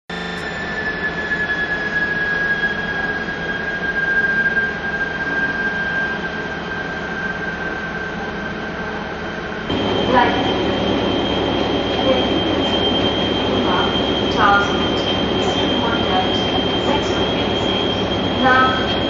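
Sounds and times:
diesel locomotive engine whine: 0.1 - 19.0.

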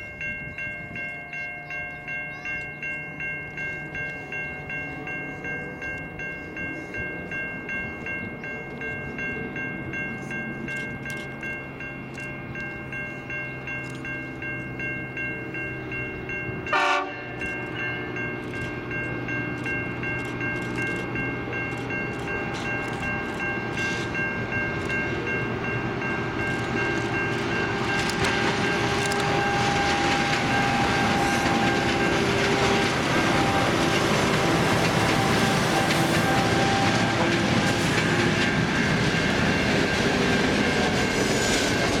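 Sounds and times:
diesel locomotive engines: 0.0 - 42.0
rail noise: 0.0 - 42.0
locomotive horn chord: 16.6 - 17.5, 27.5 - 39.0.

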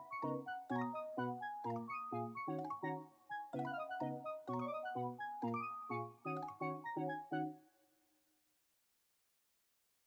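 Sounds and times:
upbeat music with bass line: 0.0 - 7.5.

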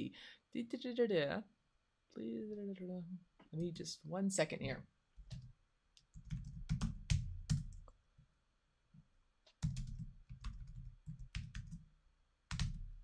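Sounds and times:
typing on computer keyboard: 5.2 - 7.9, 9.5 - 11.9, 12.5 - 13.0.

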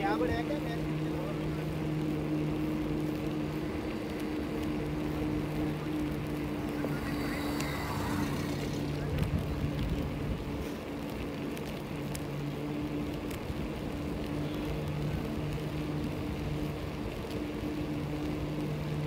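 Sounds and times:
low hum: 0.0 - 19.0
wind and tyre noise: 0.0 - 19.0
faint clicks: 2.8 - 18.8.

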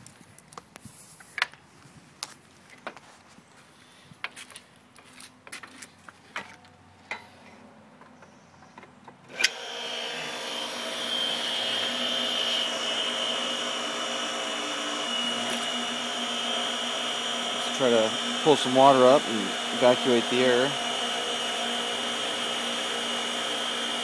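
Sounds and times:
pump motor whining: 9.3 - 24.0.

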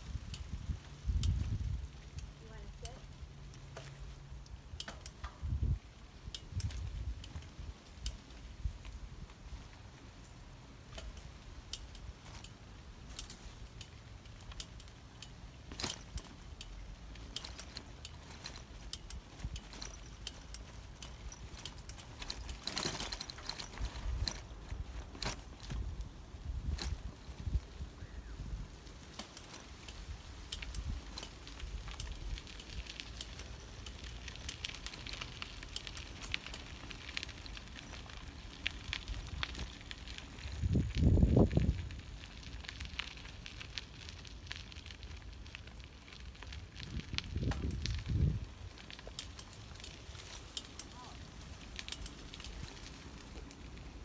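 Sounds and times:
wind rumble on microphone: 0.0 - 2.9, 4.6 - 9.8, 23.2 - 33.1, 33.9 - 50.4
bicycle rattling on dirt trail: 0.0 - 54.0.

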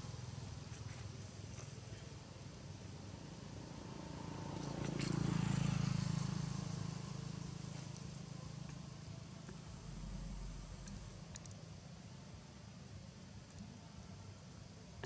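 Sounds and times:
low rumble: 9.4 - 11.5.

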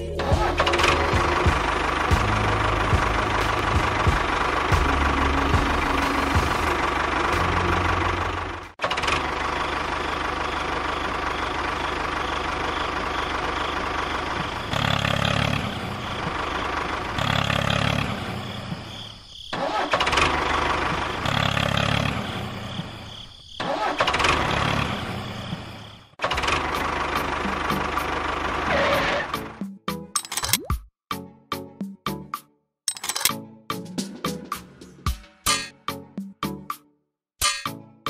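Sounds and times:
tractor engine revving: 0.0 - 18.9, 19.5 - 29.6.

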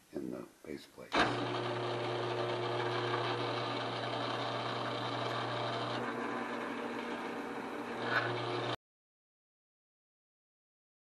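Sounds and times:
drill bit cutting steel: 1.2 - 8.8
drill press motor hum: 1.2 - 8.8.

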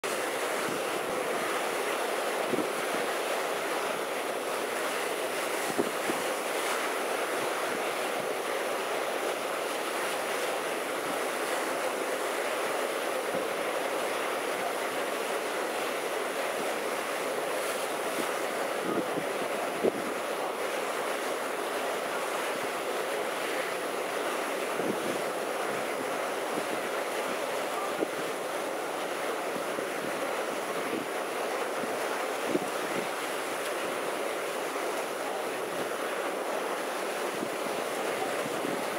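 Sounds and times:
choppy sea: 0.0 - 38.9.

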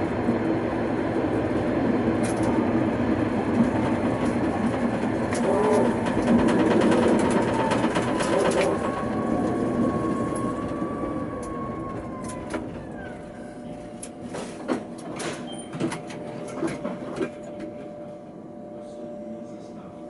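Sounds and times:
tram motor whine: 0.0 - 20.0.

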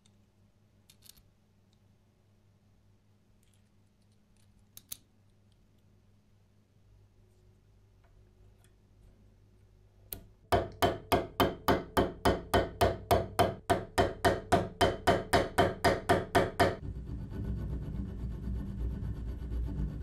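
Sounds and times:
hammer tapping on metal: 10.5 - 16.8.

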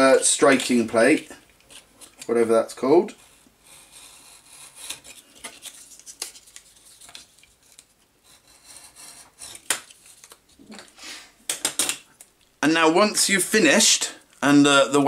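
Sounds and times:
knife scraping cardboard: 3.2 - 5.6, 8.2 - 9.7.

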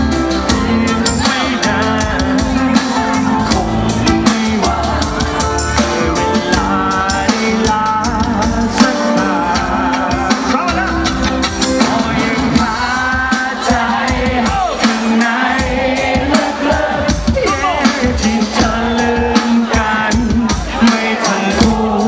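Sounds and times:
amplified pop-rock music: 0.0 - 22.0
steady drum beat: 0.0 - 22.0
man singing into microphone: 0.4 - 22.0.

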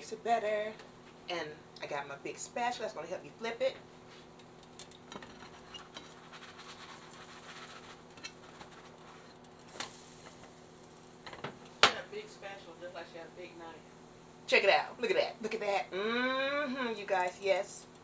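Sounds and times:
butter sizzling in a skillet: 5.0 - 12.9.

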